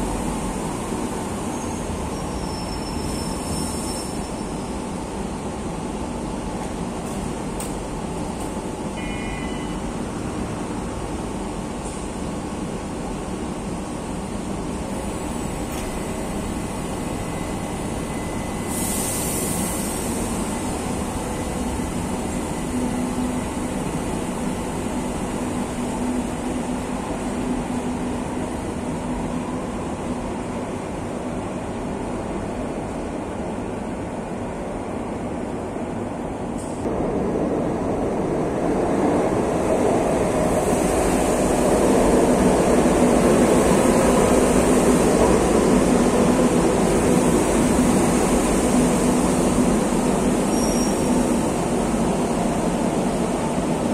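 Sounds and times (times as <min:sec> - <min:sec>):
metro train rumbling away: 0:00.0 - 0:53.9.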